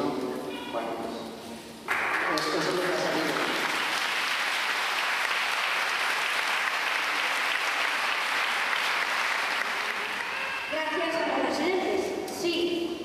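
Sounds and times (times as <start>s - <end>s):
audience applauding: 1.9s - 10.8s.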